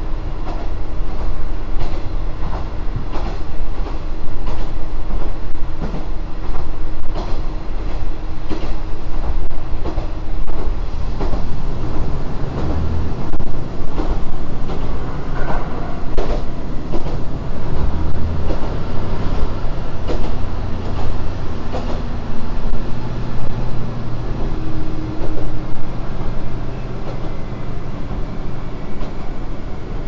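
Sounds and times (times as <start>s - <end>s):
railcar low rumble: 0.0s - 30.0s
wheels clicking over rail joints: 0.0s - 30.0s.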